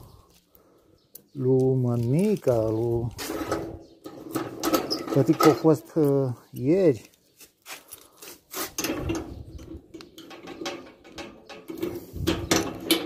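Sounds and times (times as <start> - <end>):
padlock rattling against metal bolt: 3.2 - 6.7.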